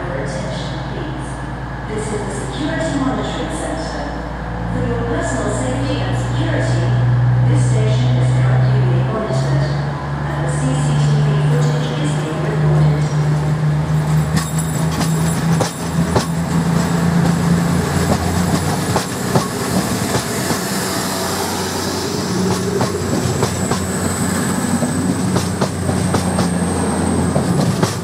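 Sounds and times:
train diesel engine drone: 0.0 - 28.0
wheels clicking over rail joints: 14.1 - 20.6.

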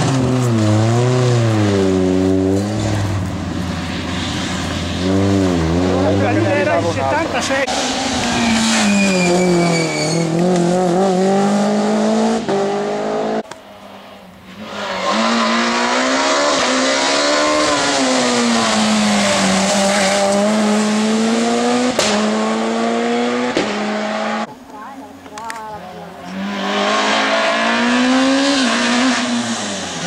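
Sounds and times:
rally car engines passing: 0.0 - 24.5, 25.9 - 30.0
tyre squeal: 7.7 - 10.4.

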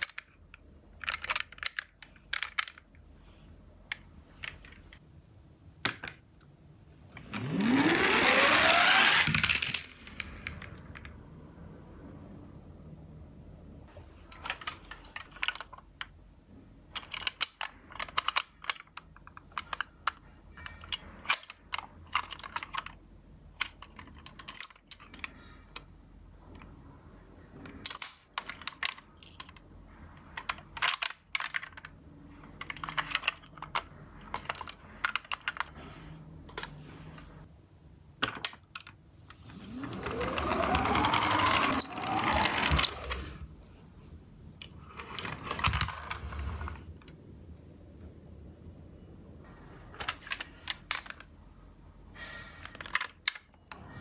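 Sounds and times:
toy car friction motor whirring: 7.2 - 10.4, 39.4 - 43.5.

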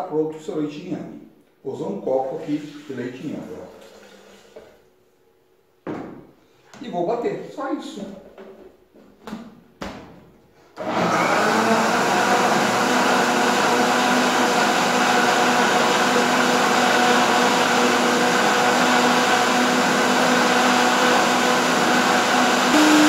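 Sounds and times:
blender running: 10.8 - 23.0.

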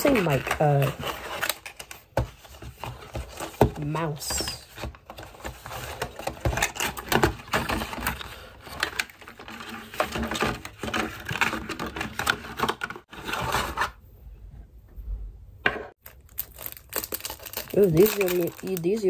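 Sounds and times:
packaging rustling: 16.0 - 19.0.

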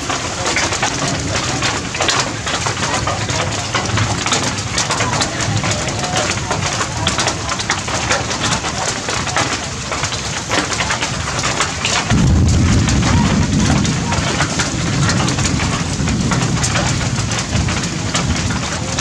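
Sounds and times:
rain on tree foliage: 0.0 - 19.0
deep low rumble: 12.0 - 19.0.

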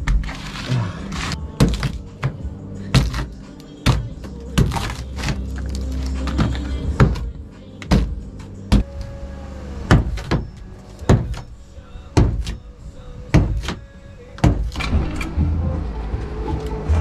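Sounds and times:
hand tool chopping fiberglass: 0.1 - 2.4, 3.0 - 8.1.

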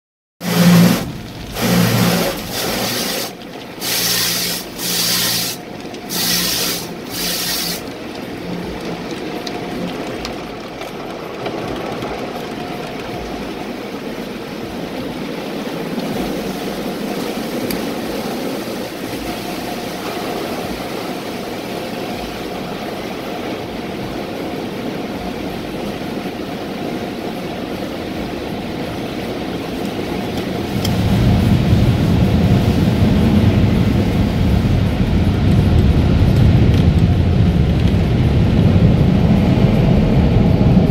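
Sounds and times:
spray bursts hitting glass: 0.4 - 7.9
water pouring over windshield: 0.4 - 24.7.

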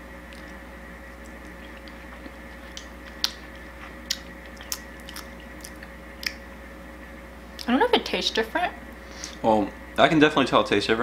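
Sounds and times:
faint steady hum: 0.0 - 11.0
people chewing juicy fruit: 0.2 - 6.5.

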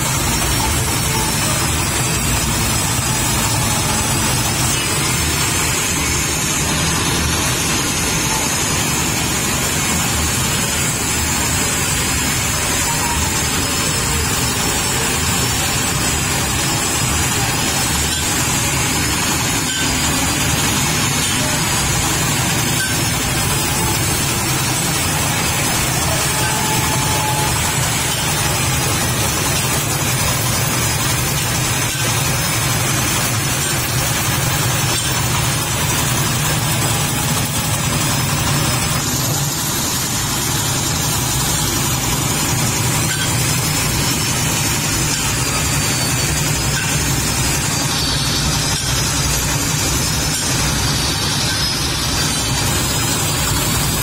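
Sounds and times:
grating machine shredding wood: 0.0 - 54.0.

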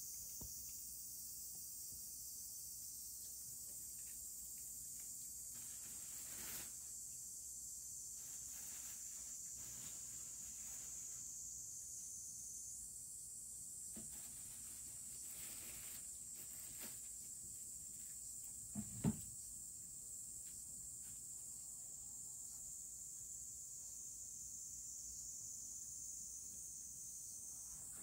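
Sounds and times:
insects droning: 0.0 - 28.0.

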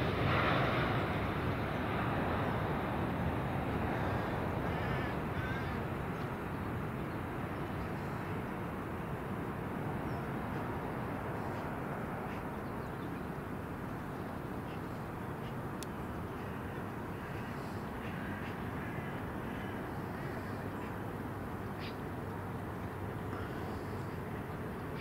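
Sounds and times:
distant jet airliner rumble: 0.0 - 25.0
faint bird calls: 3.9 - 6.3, 16.2 - 21.0, 21.7 - 22.1.

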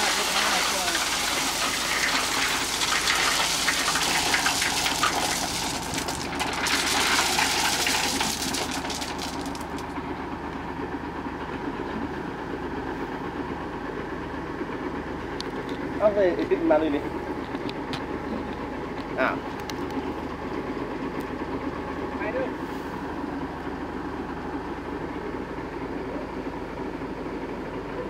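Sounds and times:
loose stone pouring and clattering: 0.0 - 10.0
diesel truck engine idling: 8.4 - 28.0.

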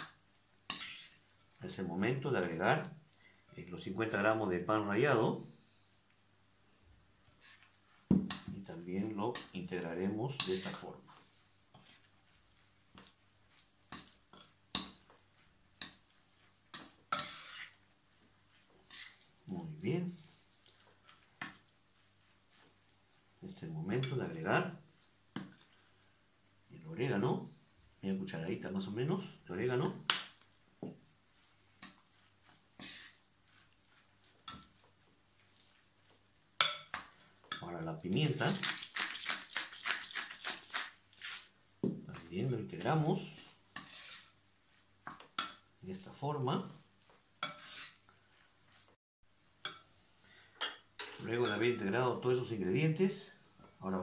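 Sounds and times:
fork scraping glass bowl: 0.0 - 1.3, 10.3 - 15.2, 15.8 - 17.9, 18.5 - 19.5, 20.1 - 24.2, 31.3 - 35.8, 36.6 - 41.5, 43.2 - 44.4, 45.1 - 46.0, 47.0 - 48.8
spoon scraping glass: 0.7 - 1.2, 10.3 - 12.1, 16.3 - 17.8, 18.8 - 19.4, 22.2 - 24.2, 31.8 - 34.8, 43.3 - 44.4, 47.4 - 48.0.

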